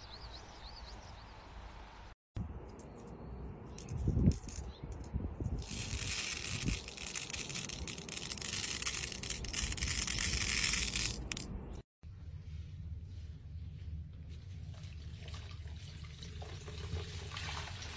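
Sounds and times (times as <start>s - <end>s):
pins crackling rattle: 3.8s - 11.8s.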